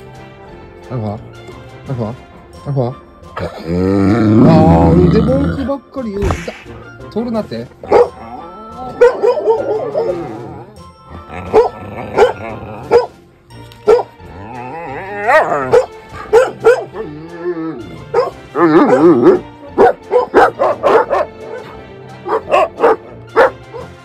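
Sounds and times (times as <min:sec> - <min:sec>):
background music: 0:00.0 - 0:24.0
dog barking: 0:07.8 - 0:08.2, 0:09.0 - 0:10.2, 0:11.5 - 0:13.2, 0:13.9 - 0:14.1, 0:15.3 - 0:17.1, 0:18.1 - 0:24.0.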